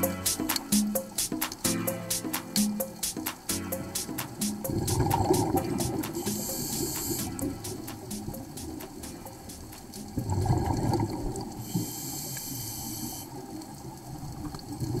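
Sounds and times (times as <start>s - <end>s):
regulator hissing: 0.0s - 9.7s
exhaled air bubbling: 4.7s - 8.6s, 10.0s - 11.8s, 13.4s - 15.0s.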